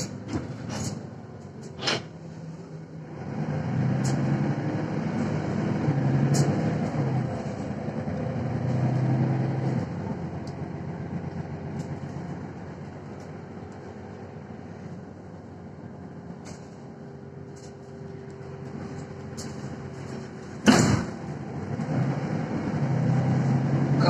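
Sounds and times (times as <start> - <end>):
bus engine and road rumble: 0.0 - 24.0.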